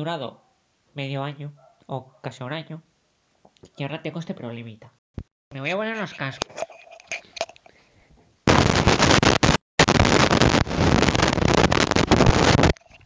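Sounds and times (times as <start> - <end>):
crackling static from headphones: 8.5 - 13.0.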